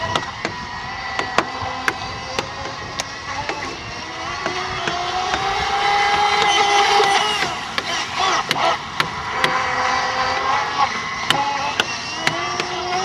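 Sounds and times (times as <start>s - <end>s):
electric boat motors whining: 0.0s - 13.0s.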